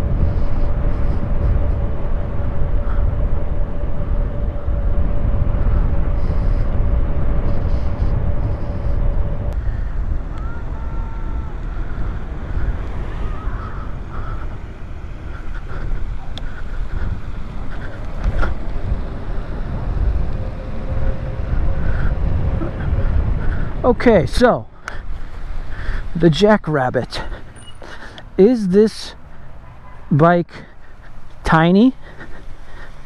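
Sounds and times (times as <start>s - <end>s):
wind rumbling on microphone: 0.0s - 28.5s
tyre noise: 5.3s - 24.4s.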